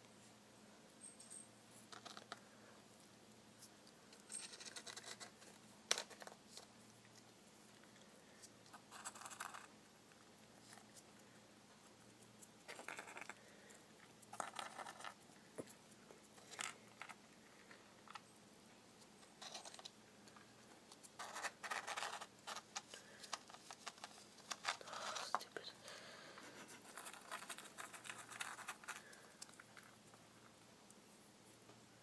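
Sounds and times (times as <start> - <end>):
hamster claws scrabbling on tiles: 14.2 - 18.2, 26.7 - 30.0.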